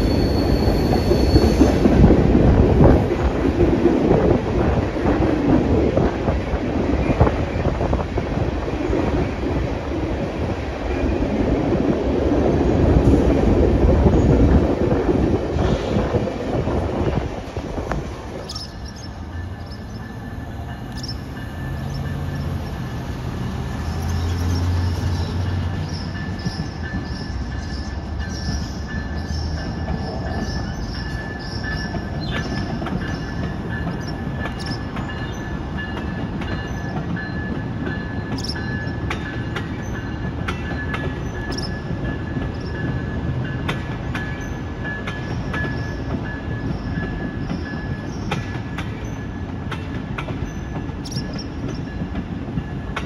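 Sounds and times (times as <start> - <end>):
wheel squeal: 0.0 - 1.8
diesel locomotive engine rumble: 0.0 - 53.0
wheels clicking over rail joints: 23.9 - 53.0.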